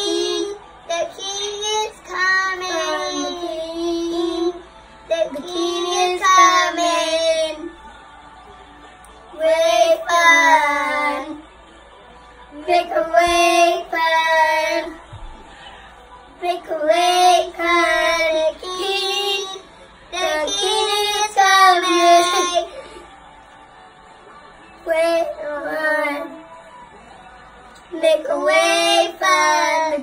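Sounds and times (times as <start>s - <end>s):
young boy singing unaccompanied: 0.0s - 7.7s, 27.9s - 30.0s.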